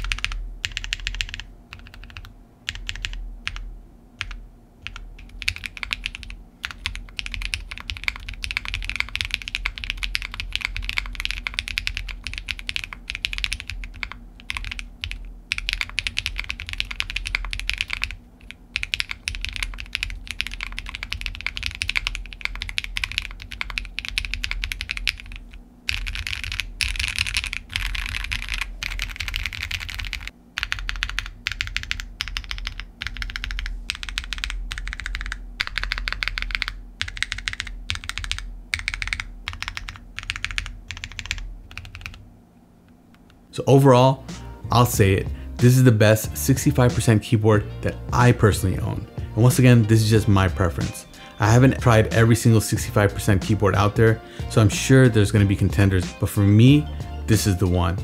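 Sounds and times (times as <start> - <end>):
mechanical keyboard typing: 0.0 - 3.6, 4.2 - 42.2.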